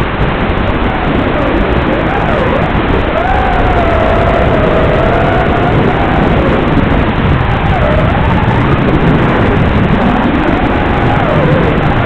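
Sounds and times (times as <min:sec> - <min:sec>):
wind rushing: 0:00.0 - 0:12.0
drone motors whining: 0:00.7 - 0:12.0.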